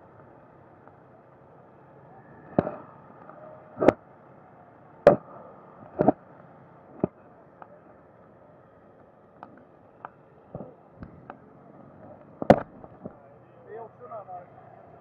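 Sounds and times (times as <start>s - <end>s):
muffled steady background noise: 0.0s - 15.0s.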